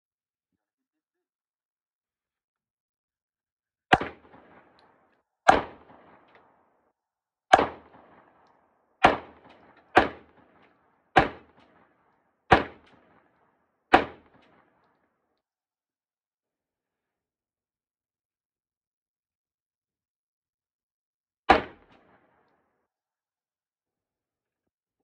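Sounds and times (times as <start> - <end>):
gunshots with echo: 3.9 - 6.6, 7.5 - 8.4, 9.0 - 13.3, 13.9 - 14.7, 21.5 - 22.4.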